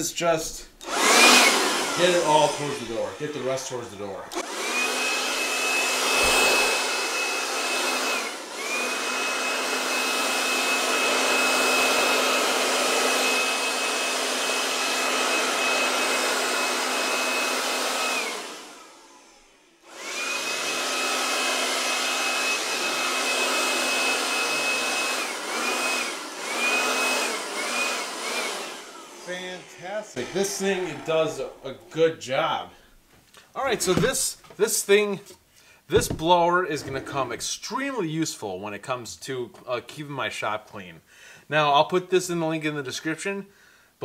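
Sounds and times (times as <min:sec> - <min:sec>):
cordless blower whine: 0:00.8 - 0:31.9.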